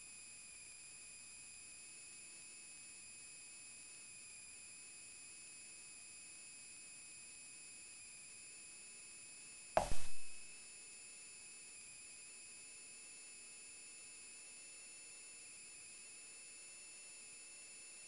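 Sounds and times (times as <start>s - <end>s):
thump: 9.8s - 10.4s.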